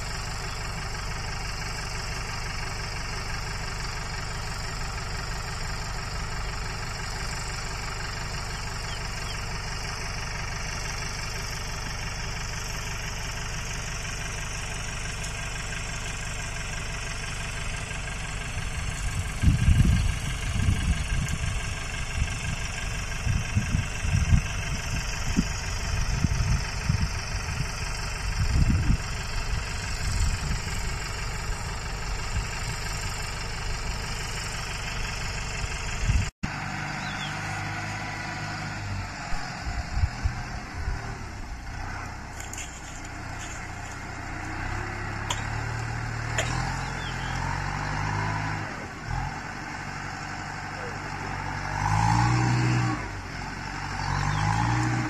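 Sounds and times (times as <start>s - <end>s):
tractor engine running: 0.0s - 55.0s
wind buffeting microphone: 18.7s - 22.6s, 23.2s - 31.0s.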